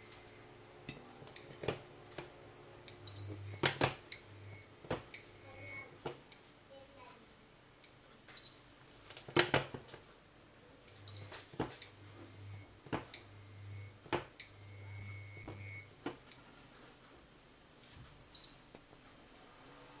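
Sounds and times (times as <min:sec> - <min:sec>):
induction hob electrical hum: 0:00.0 - 0:20.0
short high beeps: 0:03.1 - 0:05.9, 0:11.1 - 0:11.4.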